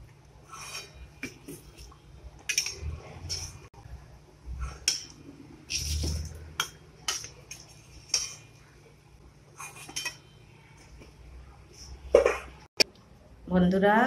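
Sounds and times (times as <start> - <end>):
metal spatula clinking and scraping: 2.5 - 3.6, 4.8 - 8.6, 9.7 - 10.4.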